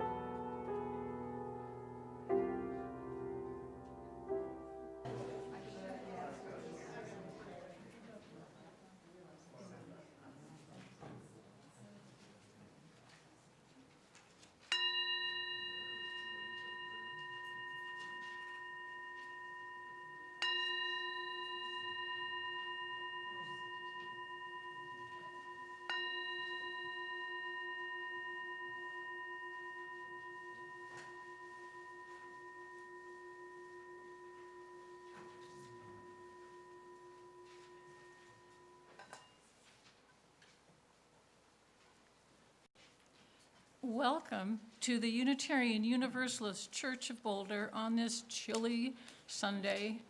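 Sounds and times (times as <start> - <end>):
singing bowl ringing: 14.7 - 39.5.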